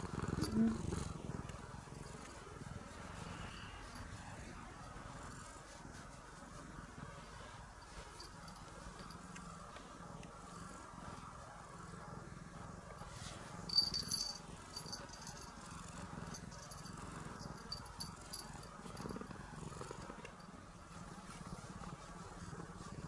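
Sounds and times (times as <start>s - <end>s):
cat purring: 0.0s - 23.0s
collar bell tinkling: 13.7s - 19.3s.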